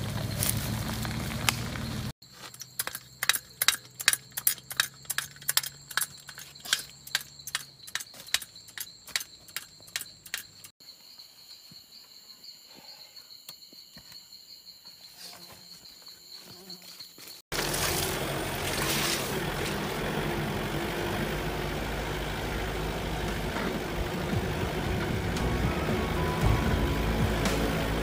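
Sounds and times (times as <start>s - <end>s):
insects trilling: 0.0s - 25.4s
sharp clicks and crackles: 0.1s - 10.7s.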